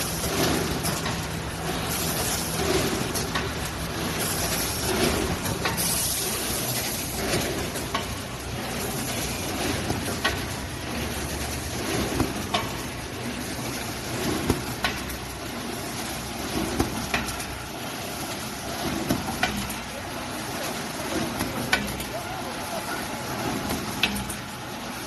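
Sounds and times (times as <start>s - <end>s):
bag sewing machine running: 0.0s - 21.6s.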